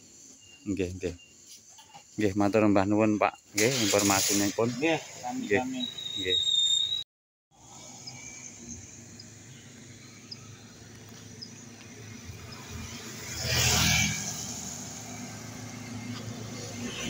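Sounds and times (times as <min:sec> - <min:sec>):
motorcycle passing by: 0:10.5 - 0:17.0.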